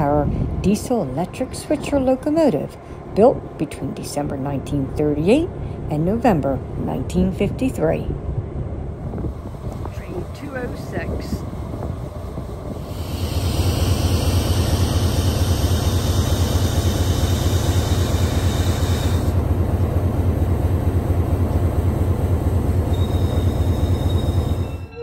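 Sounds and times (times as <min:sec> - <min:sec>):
diesel locomotive engine throbbing: 0:00.0 - 0:25.0
high hiss: 0:12.1 - 0:19.4.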